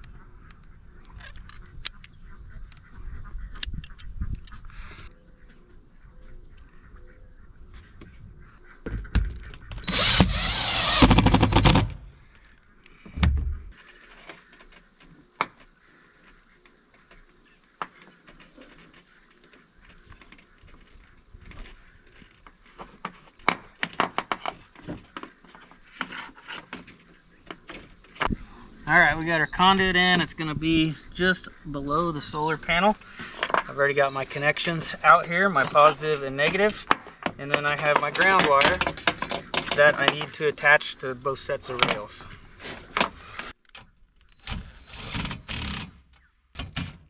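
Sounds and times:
cordless drill whirring: 9.8 - 11.9
low thump: 13.2 - 13.7.

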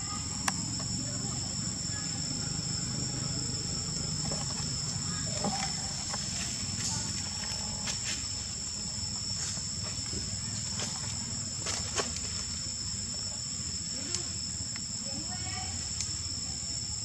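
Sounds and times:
insects droning: 0.0 - 17.0
faint clicks: 14.0 - 14.9.

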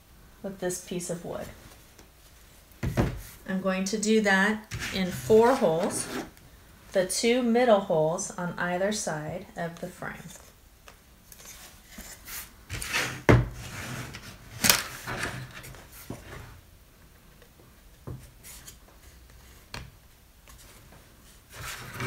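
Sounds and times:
wood rubbing and scraping: 4.7 - 6.4, 21.5 - 22.0.

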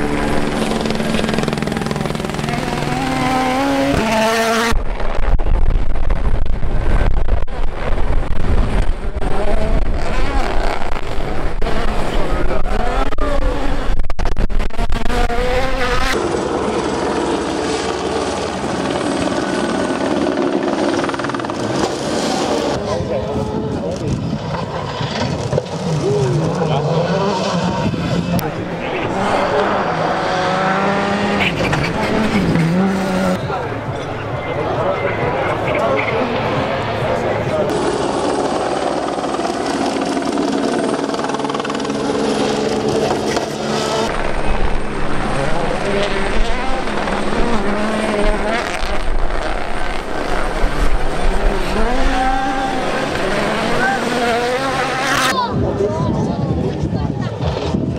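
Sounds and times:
rally car engine revving: 0.0 - 55.5
car engine drone: 0.0 - 57.9
rally car engine driving past: 24.5 - 38.2.

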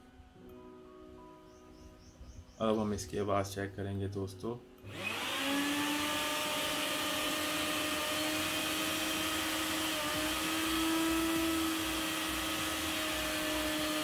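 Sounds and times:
mixer grinder motor whine: 4.9 - 14.0.

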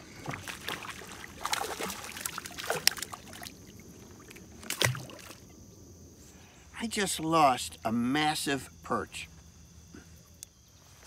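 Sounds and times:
fish splashing at water surface: 0.2 - 5.5.

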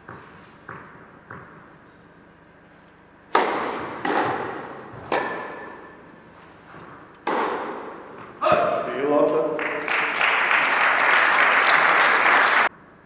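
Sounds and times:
racket striking ball with echo: 3.3 - 6.1, 6.8 - 8.8.

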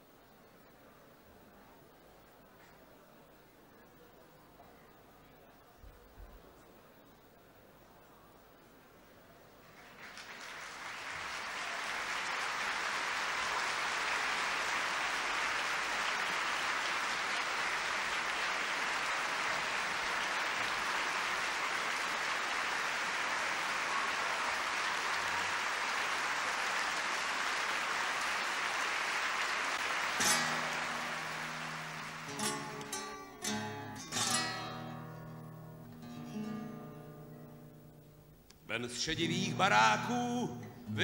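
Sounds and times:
audience applauding: 9.6 - 35.0
acoustic guitar plucked: 30.2 - 38.3.

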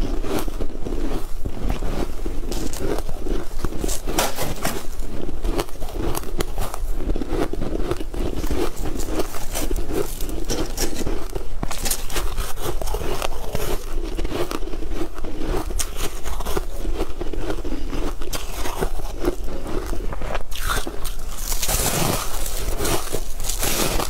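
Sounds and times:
crunchy chewing: 0.0 - 24.0
crumbly bar crackling as broken: 20.5 - 24.0.

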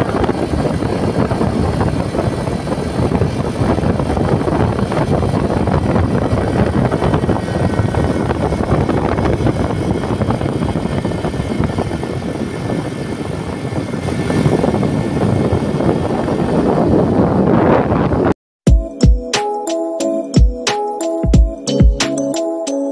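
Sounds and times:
motorcycle road and engine noise: 0.0 - 18.4
wind buffeting microphone: 0.0 - 18.4.

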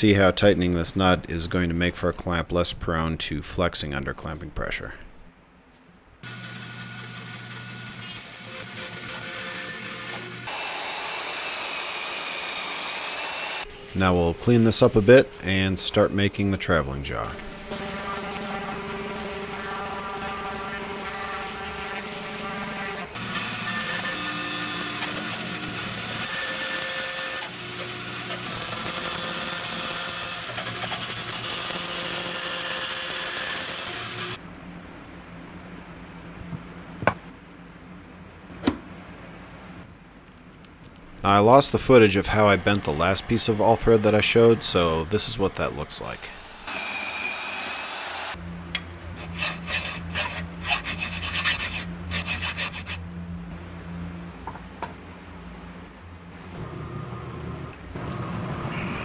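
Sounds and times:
bandsaw cutting wood: 6.2 - 16.3, 17.2 - 34.4, 41.9 - 48.4, 49.2 - 53.0
low steady hum: 34.4 - 46.7, 48.3 - 58.7
hand file rasping on steel: 49.2 - 53.0.

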